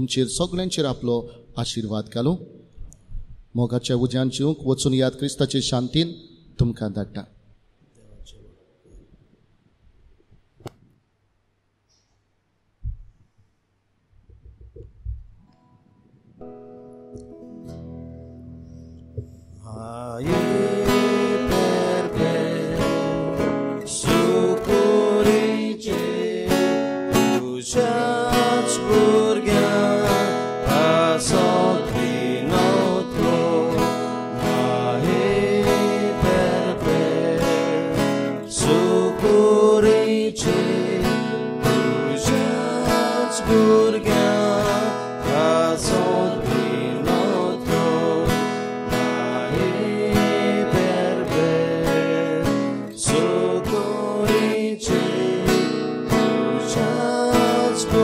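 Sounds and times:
strummed acoustic guitar: 16.4 - 58.0.

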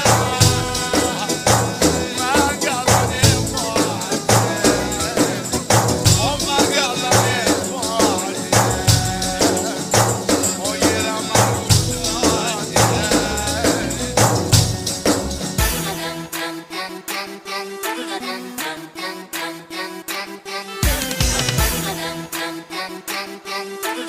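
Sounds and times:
drum beat: 0.0 - 16.0, 20.8 - 22.0
bass: 0.0 - 16.2
tambourine: 0.0 - 16.3
keyboard lead melody bending in pitch: 0.0 - 16.4.

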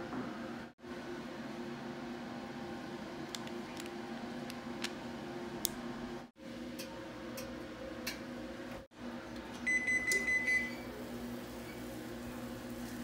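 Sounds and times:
oven beeping: 9.4 - 12.0.

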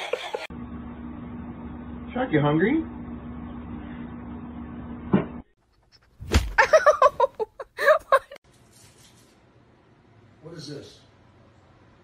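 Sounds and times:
sharp thump: 6.2 - 6.6.

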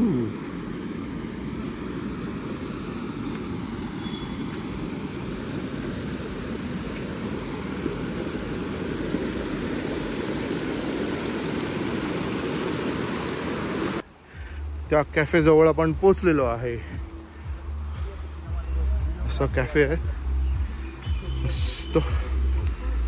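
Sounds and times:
stream rushing over boulders: 0.0 - 14.0.

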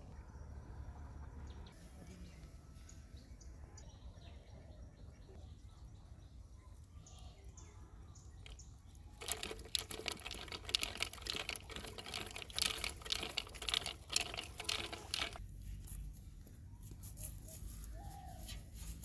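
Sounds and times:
fishing reel clicking as line pulls: 9.2 - 15.4.

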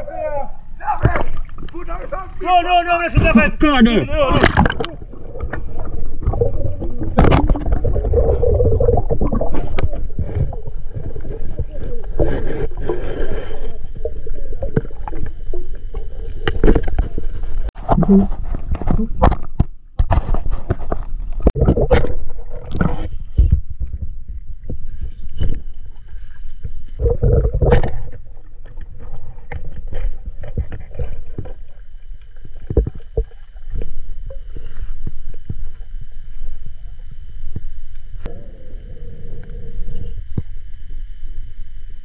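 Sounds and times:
water splashing: 0.9 - 19.4
faint high whine: 28.0 - 42.0.

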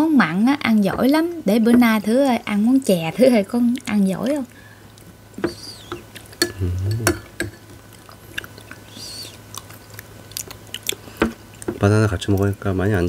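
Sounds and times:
chewing: 3.7 - 13.0.

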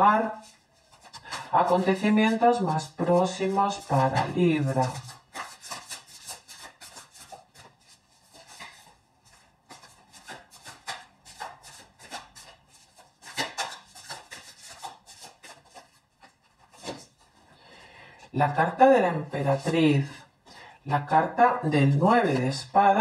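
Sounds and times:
cards being shuffled: 0.4 - 17.4.

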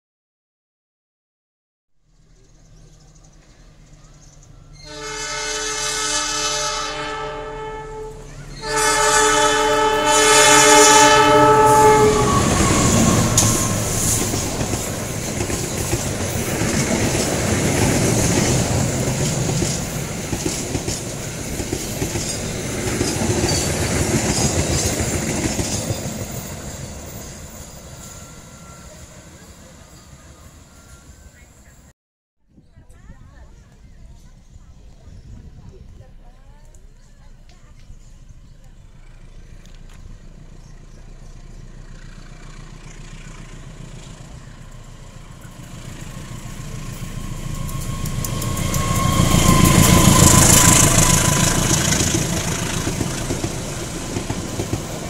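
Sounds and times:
train rumbling past: 2.0 - 31.9, 32.9 - 55.0
locomotive horn blasts: 4.7 - 14.2, 46.9 - 52.8
wheels clacking over rail joints: 11.4 - 28.7, 36.8 - 55.0.

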